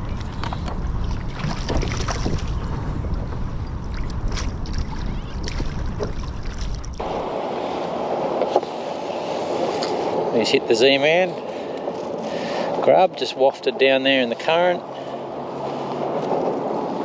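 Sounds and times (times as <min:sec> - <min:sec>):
water slapping and splashing: 0:00.0 - 0:07.8
wind buffeting microphone: 0:00.0 - 0:12.9.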